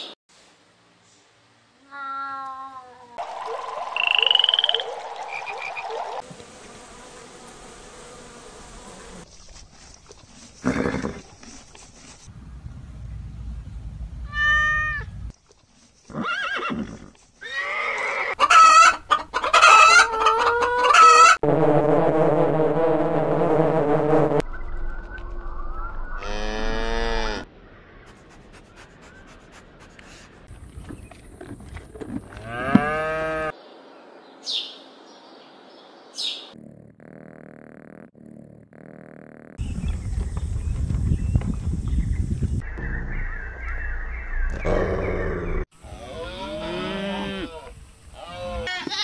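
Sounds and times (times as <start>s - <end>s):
chorus of frogs: 3.2s - 6.2s
frog pulsed trill: 3.9s - 5.8s
honeybees buzzing: 6.0s - 9.6s
cow mooing: 26.2s - 27.5s, 32.4s - 33.5s, 45.9s - 47.7s.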